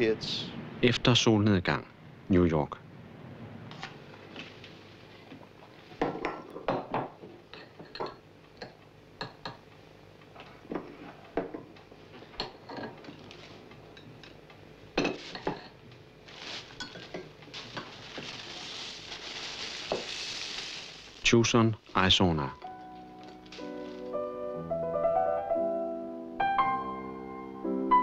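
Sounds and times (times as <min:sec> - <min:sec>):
steady hiss: 0:13.2 - 0:24.7.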